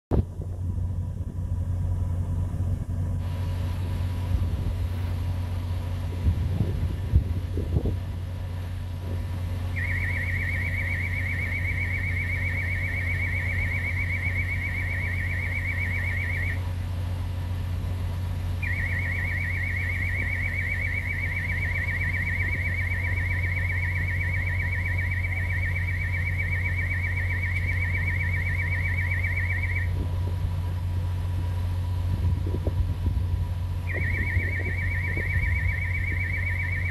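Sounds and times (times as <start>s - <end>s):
diesel engine idling: 0.2s - 36.9s
warbling electronic warning beep: 9.7s - 16.7s, 18.6s - 30.0s, 33.8s - 36.9s.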